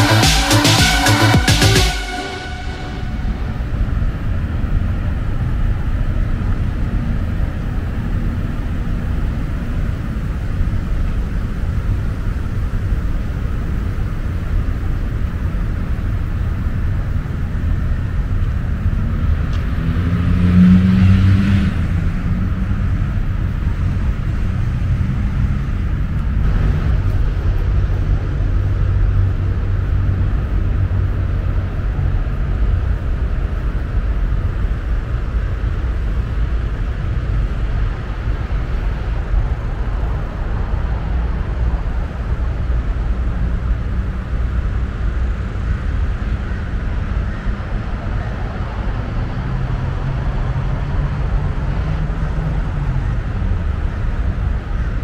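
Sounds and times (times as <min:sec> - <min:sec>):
distant road traffic rumble: 0:02.7 - 0:55.0
engine passing by: 0:18.5 - 0:32.8, 0:35.7 - 0:55.0.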